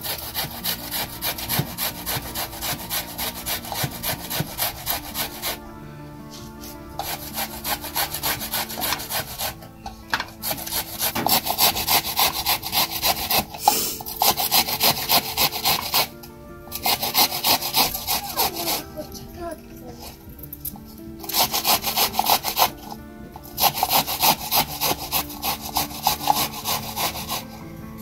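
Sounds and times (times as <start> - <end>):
vegetables scraped on a metal grater: 0.0 - 5.6, 7.0 - 16.1, 16.8 - 19.2, 20.0 - 27.6.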